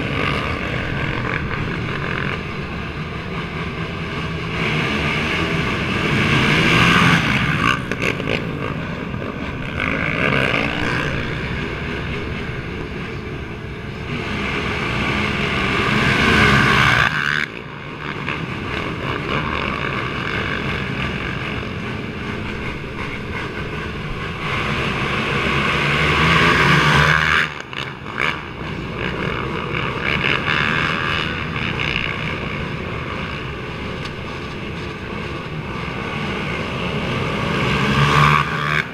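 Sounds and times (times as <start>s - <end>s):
quad engines revving: 0.0s - 38.9s.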